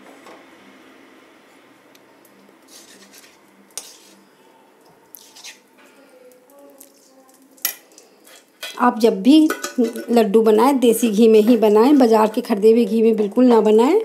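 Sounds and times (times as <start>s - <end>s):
metal spoon scraping a pan: 2.7s - 4.3s, 5.1s - 5.7s, 7.0s - 10.2s.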